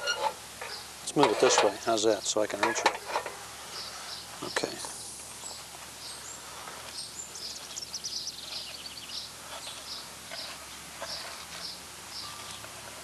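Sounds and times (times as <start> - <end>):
outdoor background noise: 0.0 - 13.0
wren singing: 3.7 - 12.7.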